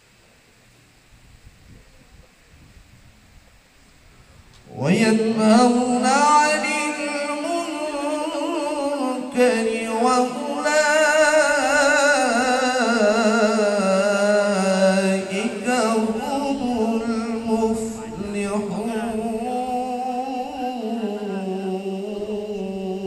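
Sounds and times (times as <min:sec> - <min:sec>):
man reciting melodically: 0:04.7 - 0:23.0.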